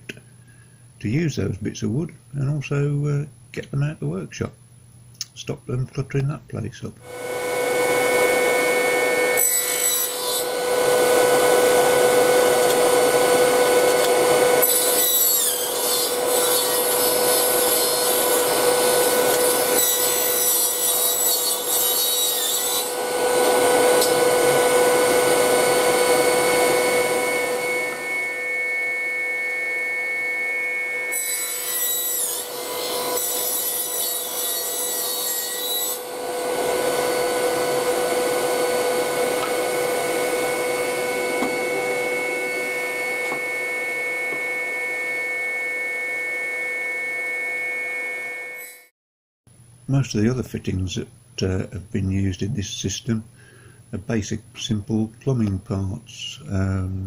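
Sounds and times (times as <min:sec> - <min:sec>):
circular saw cutting wood: 0:07.0 - 0:48.9.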